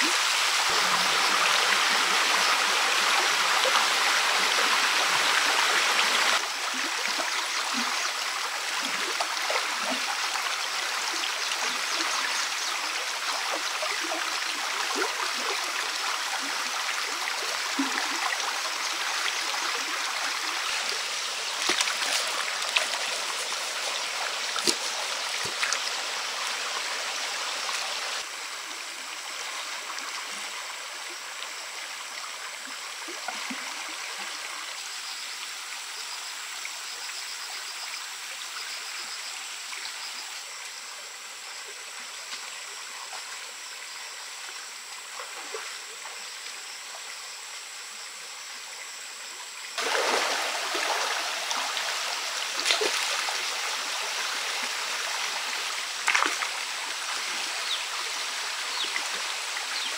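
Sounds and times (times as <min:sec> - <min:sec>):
stream water rushing: 0:00.0 - 0:28.3, 0:49.8 - 0:59.9.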